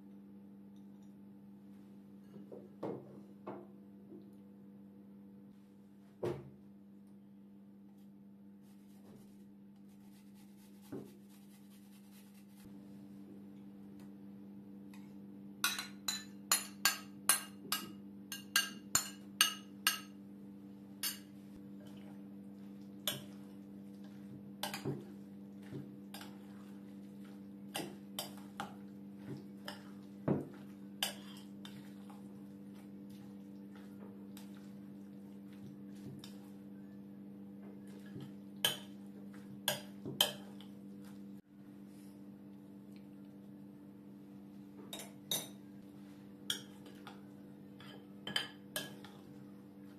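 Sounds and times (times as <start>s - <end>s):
metal spoon clinking glass bowl: 15.6s - 20.2s.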